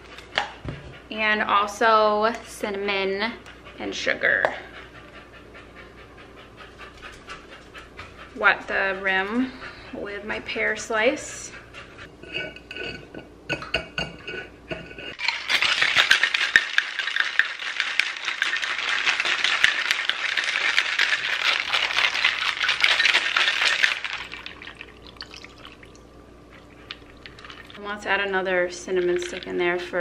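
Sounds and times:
ice rattling in cocktail shaker: 15.2s - 26.0s, 26.6s - 27.8s, 28.8s - 30.0s.

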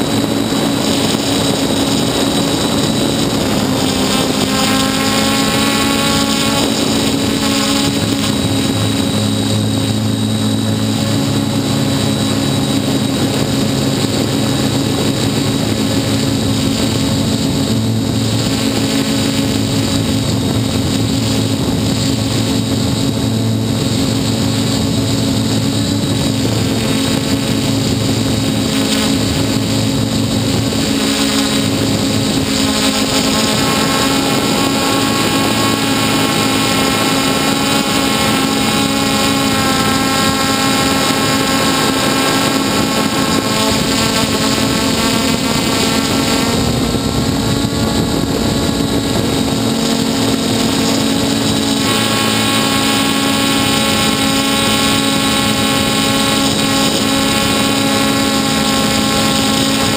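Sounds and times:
drone motors whining: 0.0s - 59.9s.

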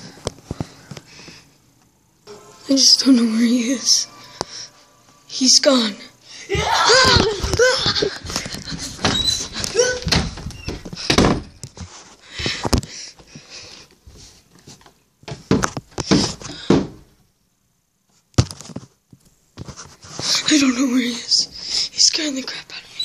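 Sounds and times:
irregular knocks and thumps: 6.6s - 11.9s
short squeaky sounds: 9.1s - 9.9s.

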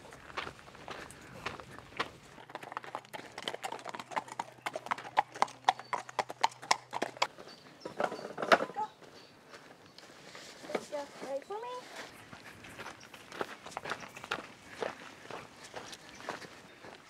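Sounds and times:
horse hooves clip-clopping on pavement: 0.4s - 7.6s.

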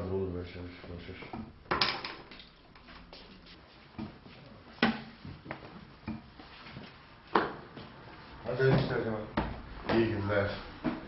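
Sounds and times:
broom sweeping floor: 2.8s - 9.0s.

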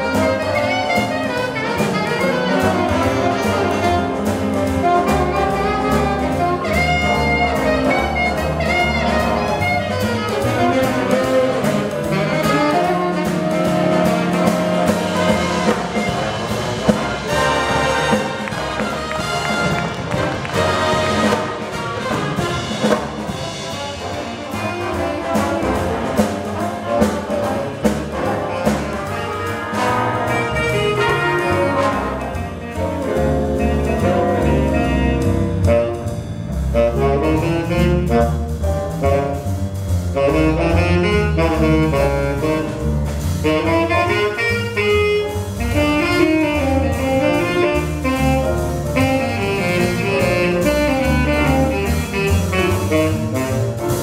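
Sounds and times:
bass: 0.0s - 54.0s
drum kit: 0.0s - 54.0s
trumpets and trombones: 0.0s - 54.0s
saxophone section: 43.4s - 53.8s.

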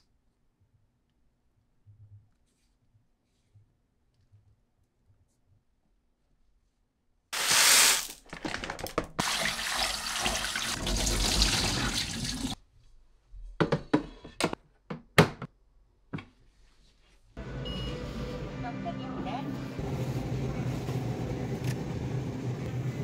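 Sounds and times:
tap water running into sink: 9.0s - 12.6s.

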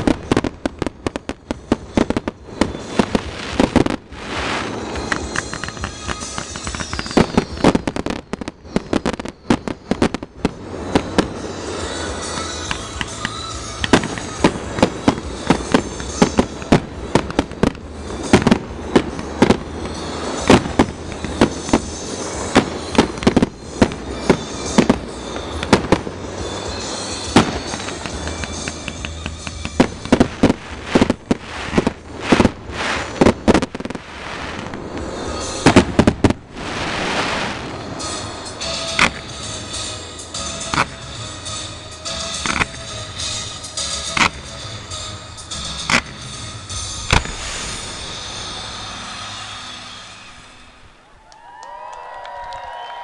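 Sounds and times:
music playing: 0.0s - 51.1s
fireworks bangs: 0.0s - 53.0s.

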